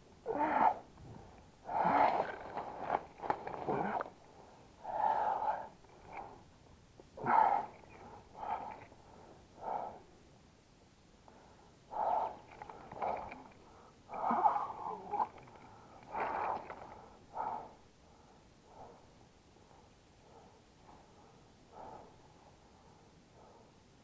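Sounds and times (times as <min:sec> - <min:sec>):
person panting: 0:11.3 - 0:24.0.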